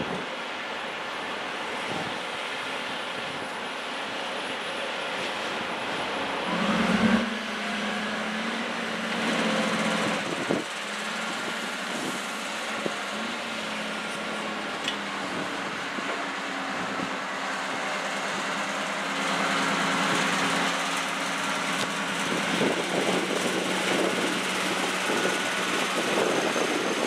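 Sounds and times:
wind: 0.0s - 27.0s
diesel engine revving: 6.2s - 27.0s.

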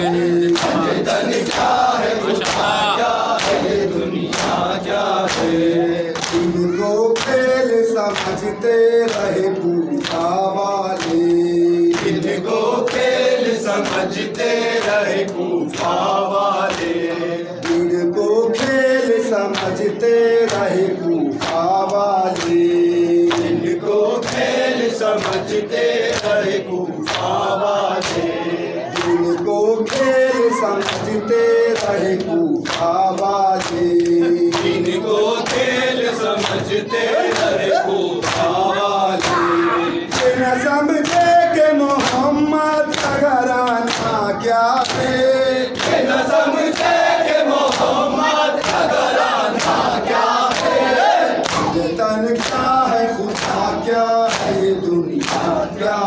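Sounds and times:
men singing in unison: 0.0s - 56.0s
person reciting into a microphone: 0.0s - 56.0s
hand slaps on chests: 0.4s - 1.8s, 3.4s - 6.6s, 7.2s - 7.4s, 11.0s - 12.3s, 21.4s - 22.7s, 38.2s - 38.6s, 44.8s - 45.1s, 48.6s - 49.0s, 50.5s - 52.7s, 53.3s - 53.7s, 54.3s - 55.6s.

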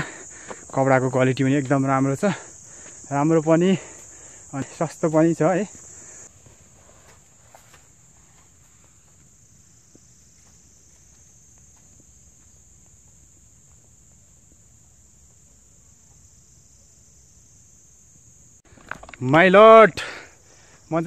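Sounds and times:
footsteps on dirt trail: 0.0s - 15.4s
high-pitched insect chorus: 0.0s - 21.0s.

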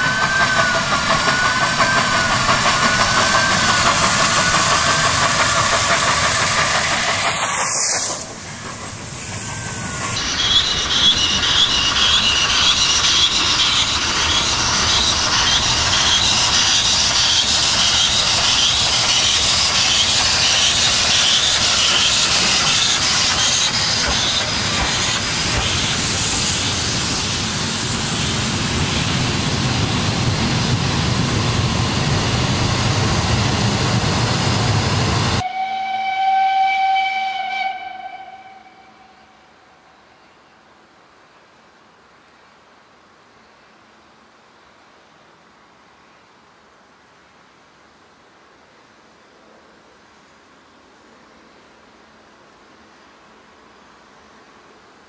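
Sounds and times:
steam locomotive rhythmic beats: 0.0s - 36.2s
train coaches rumbling: 0.0s - 36.2s
steam hissing: 0.0s - 36.5s.

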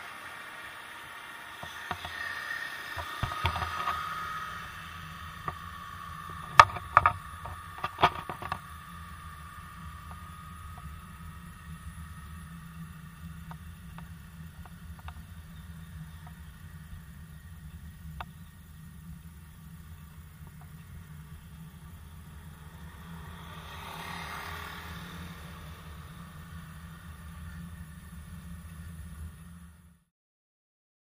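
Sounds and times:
low riding rumble: 0.0s - 30.1s
motor scooter engine whine: 0.0s - 30.1s
sharp knocks and rattles: 1.6s - 4.7s, 5.3s - 8.9s.

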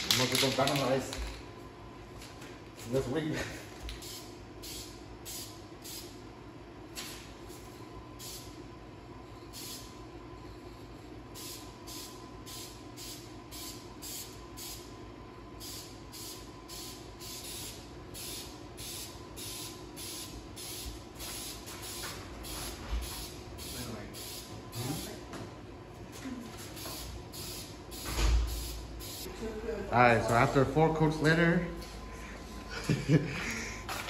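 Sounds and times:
steady hum: 0.0s - 34.0s
spray-paint can hissing: 4.0s - 6.1s, 9.5s - 9.9s.

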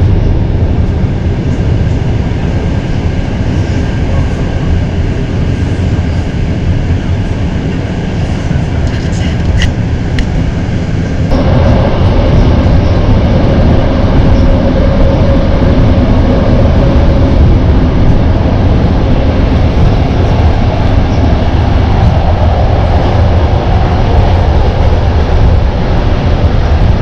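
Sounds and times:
faint steady whine: 0.0s - 27.0s
vehicle rumble from inside: 0.0s - 27.0s.

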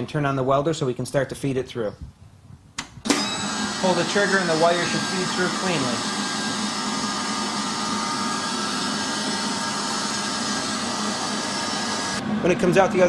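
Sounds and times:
welder wire-feed motor running: 3.1s - 12.2s.

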